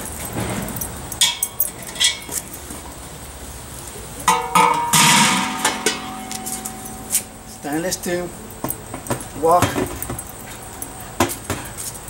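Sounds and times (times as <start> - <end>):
light metal clinks: 0.0 - 2.7, 4.3 - 12.0
metal cookware clanging and ringing: 1.1 - 2.6, 4.2 - 10.4.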